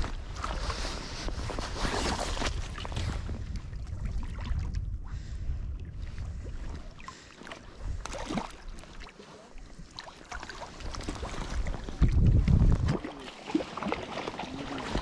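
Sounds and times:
wind rumbling on microphone: 0.0 - 9.0, 9.6 - 13.2
lake waves lapping: 0.0 - 15.0.

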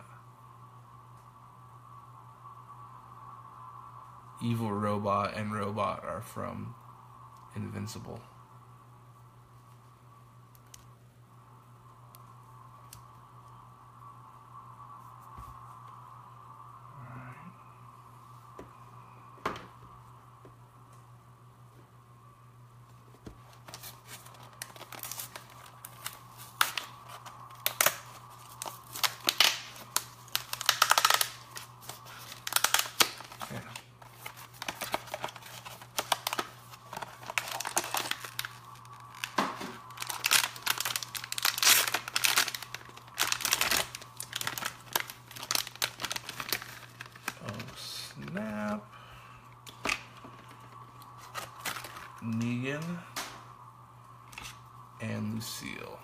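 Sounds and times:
steady low hum: 0.0 - 56.0
packaging torn and crinkled: 23.4 - 48.5, 49.6 - 52.4.

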